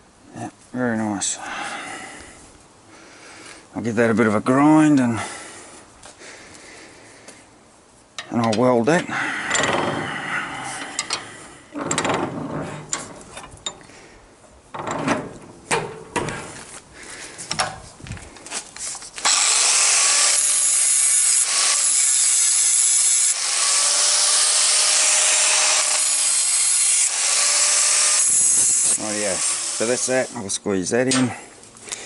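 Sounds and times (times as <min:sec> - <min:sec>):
steel rod knocking and clanking: 0:11.8 - 0:13.9, 0:14.7 - 0:16.4
angle grinder grinding steel: 0:19.2 - 0:30.3.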